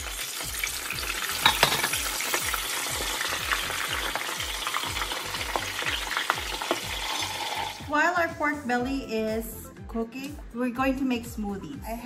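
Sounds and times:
oil crackling and popping: 0.0s - 7.8s
pork deep-frying in oil: 0.0s - 7.8s.

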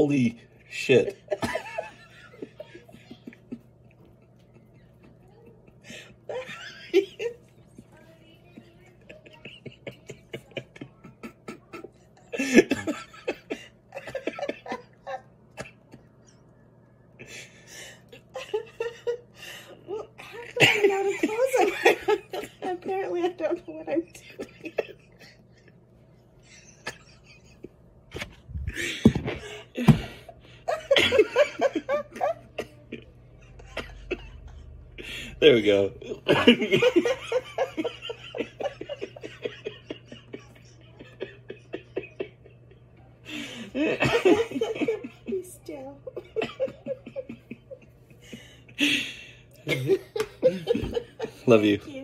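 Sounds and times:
man laughing: 0.8s - 3.6s, 9.0s - 16.2s, 26.4s - 45.4s, 46.1s - 51.8s.

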